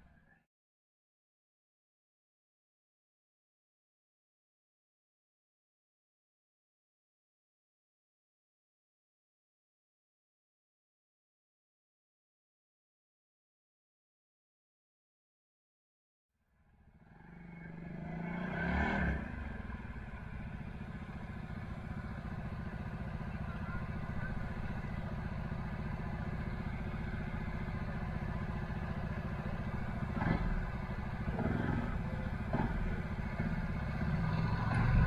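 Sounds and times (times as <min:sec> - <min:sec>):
quad bike engine idling: 0:19.2 - 0:35.0.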